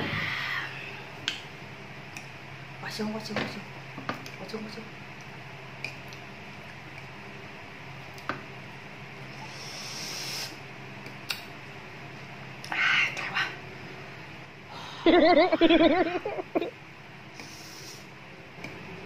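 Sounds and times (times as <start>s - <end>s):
steady low hum: 0.0s - 19.0s
hiss: 9.4s - 10.6s, 17.4s - 18.1s.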